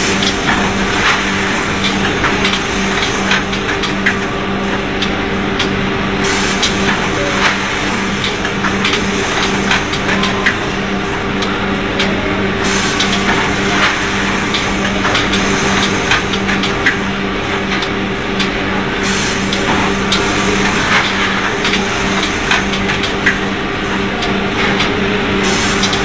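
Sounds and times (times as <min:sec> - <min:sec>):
packing machine humming: 0:00.0 - 0:26.0
machine clicks and knocks: 0:19.5 - 0:23.6, 0:25.7 - 0:26.0.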